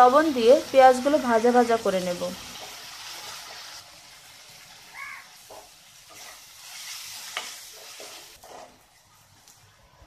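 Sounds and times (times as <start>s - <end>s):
onions sizzling in oil: 0.0s - 9.8s
wooden spatula scraping pan: 5.4s - 8.8s.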